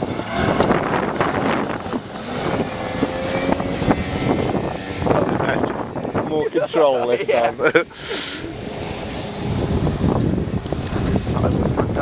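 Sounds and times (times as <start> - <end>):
outboard motor running: 0.0 - 12.0
wind buffeting microphone: 0.0 - 12.0.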